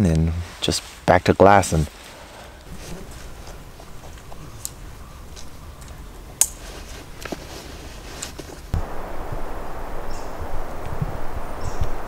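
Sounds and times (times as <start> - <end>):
low steady rumble: 8.8 - 12.0.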